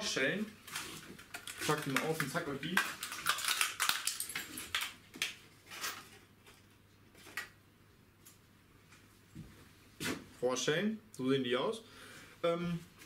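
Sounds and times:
rustling of packaging: 0.5s - 7.5s.

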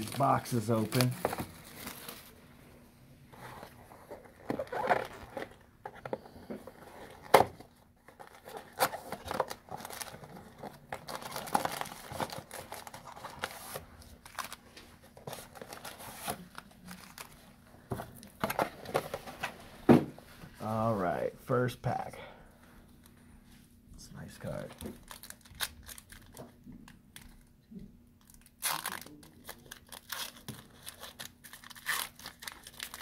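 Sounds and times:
plastic wrap tearing and crinkling: 0.0s - 2.3s, 8.2s - 17.4s, 24.4s - 27.4s, 28.2s - 33.0s.

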